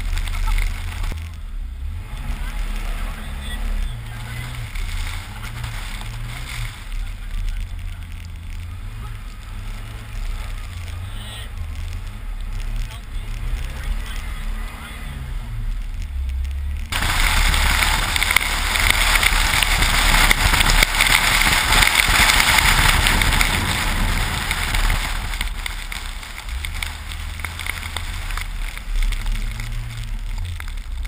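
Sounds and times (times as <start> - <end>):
car engine running low: 0.0 - 31.0
hiss of wind and snow spray: 16.9 - 30.5.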